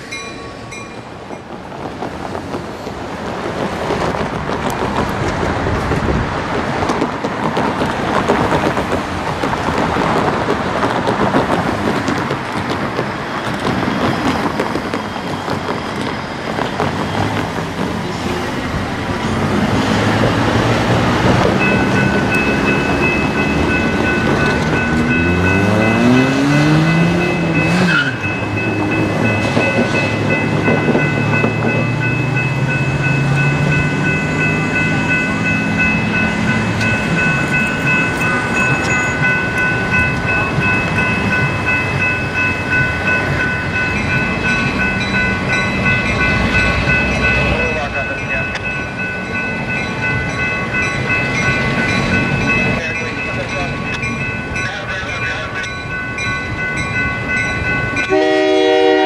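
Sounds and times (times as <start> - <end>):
steady high-pitched tone: 0.0 - 1.7
passing cars: 0.0 - 59.0.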